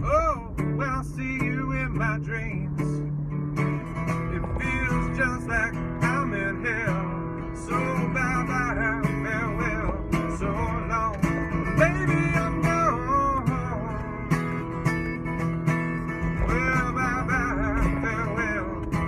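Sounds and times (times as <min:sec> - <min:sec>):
man singing: 0:00.0 - 0:03.1, 0:04.1 - 0:14.9, 0:16.0 - 0:19.0
strummed acoustic guitar: 0:00.0 - 0:19.0.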